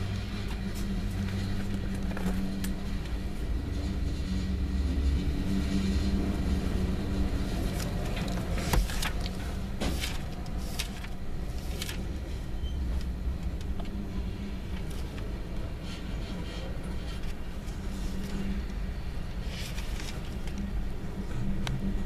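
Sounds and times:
freight train rumbling past: 0.0s - 10.5s.

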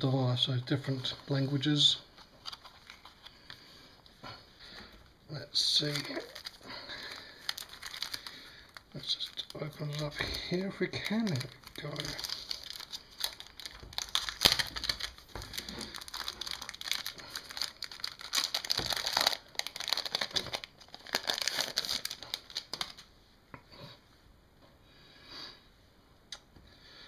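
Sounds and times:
plastic sleeve crinkling: 0.9s - 4.1s, 5.4s - 23.1s.

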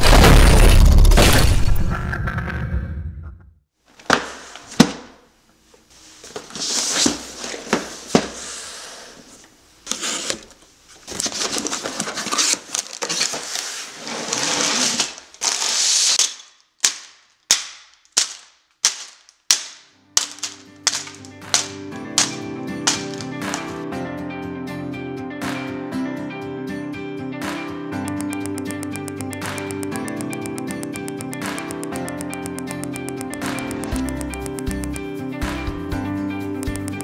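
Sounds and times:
bags of plastic pieces rattling: 12.0s - 16.2s, 20.2s - 23.8s
sharp clicks: 28.1s - 35.1s, 36.6s - 37.0s.

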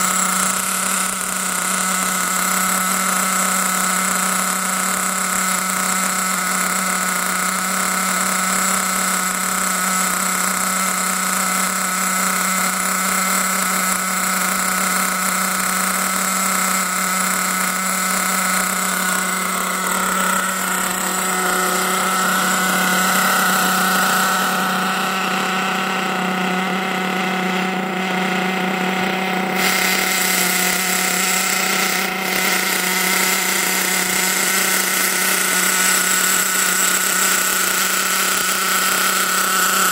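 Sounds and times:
small engine buzzing drone: 0.0s - 39.9s.

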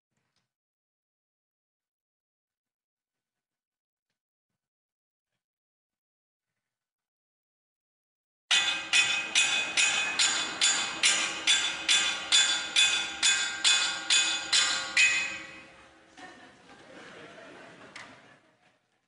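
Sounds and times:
ringing metal strikes: 8.5s - 16.1s.

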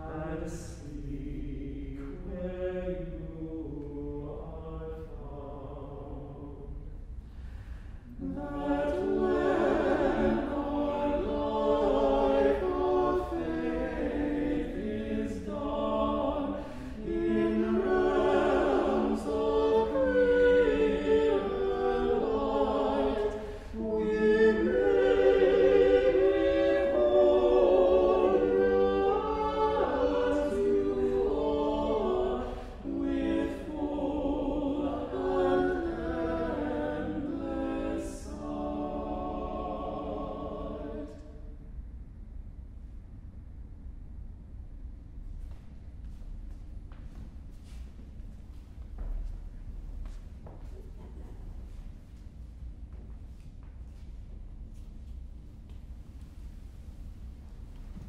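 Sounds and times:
men's choir singing: 8.2s - 41.2s.

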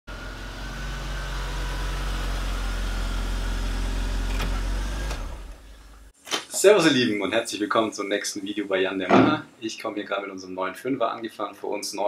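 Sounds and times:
car engine running: 0.1s - 6.1s.

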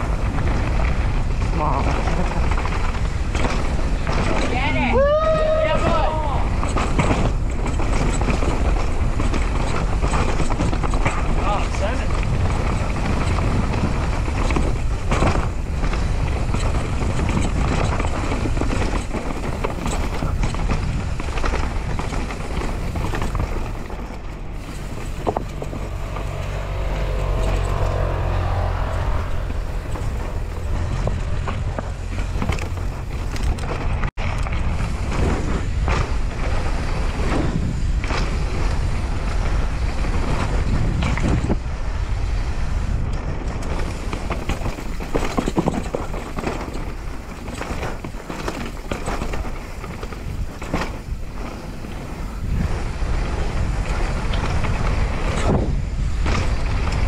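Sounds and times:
bike knocking and rattling: 0.0s - 57.0s
tyres on dirt: 0.0s - 57.0s
wind buffeting microphone: 0.0s - 57.0s.

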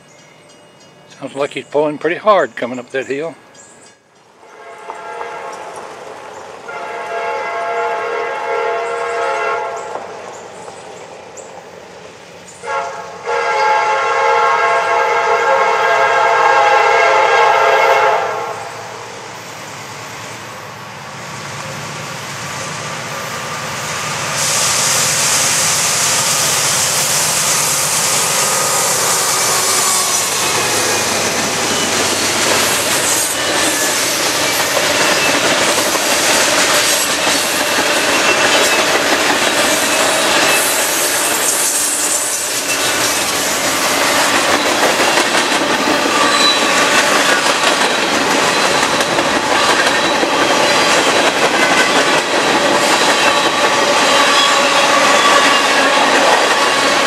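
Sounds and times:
train wheels and rail clatter: 0.0s - 15.0s, 15.6s - 57.0s
diesel locomotives pulling hard: 0.0s - 57.0s
train air horn blasts: 4.4s - 5.9s, 6.7s - 9.9s, 12.6s - 19.0s, 26.0s - 31.6s.

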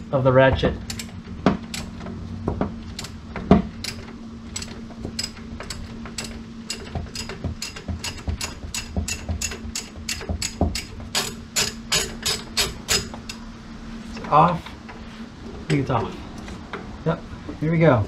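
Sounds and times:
socket ratchet clicking: 0.8s - 1.9s.

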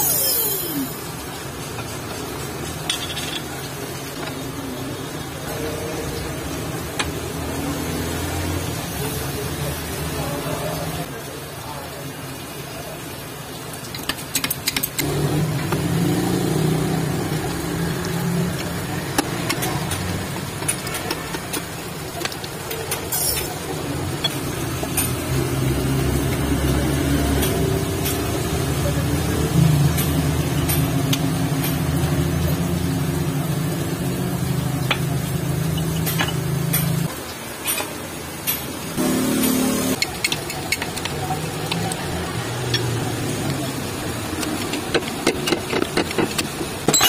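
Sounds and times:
sharp metal clicks and taps: 13.9s - 15.1s, 27.4s - 28.3s, 40.0s - 42.0s.

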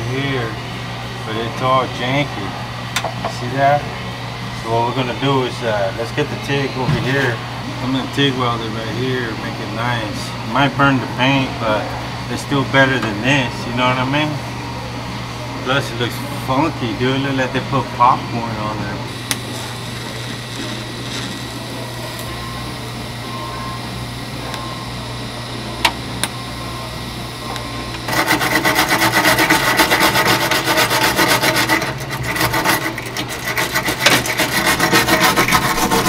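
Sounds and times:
welding hum and hiss: 7.2s - 36.0s
pad scrubbing metal: 28.1s - 36.0s.

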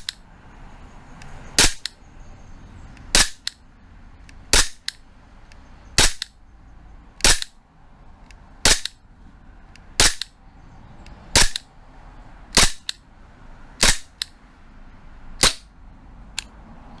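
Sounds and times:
airsoft pistol shots popping: 1.6s - 1.9s, 3.1s - 3.6s, 4.5s - 4.9s, 6.0s - 6.3s, 7.2s - 7.6s, 8.6s - 9.0s, 10.0s - 10.3s, 11.4s - 11.6s, 12.6s - 13.0s, 13.8s - 14.2s.

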